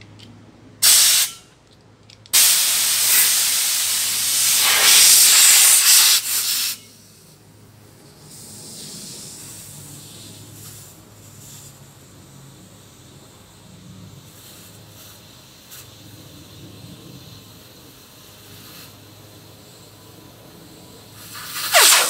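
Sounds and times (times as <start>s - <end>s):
compressed air hissing: 0.8s - 1.4s, 2.4s - 7.3s, 8.1s - 22.0s.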